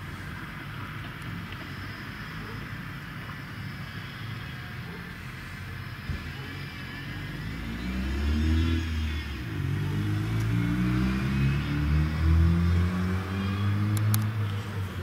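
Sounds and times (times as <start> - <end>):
car engine accelerating: 6.5 - 15.0.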